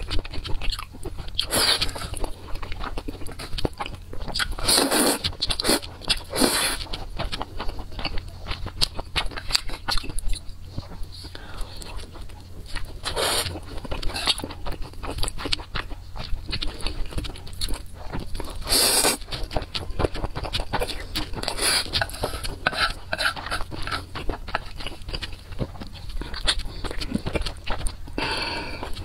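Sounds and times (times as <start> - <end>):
wet chewing and lip smacks: 0.0 - 29.0
noodle slurp: 4.6 - 6.8, 18.6 - 19.2.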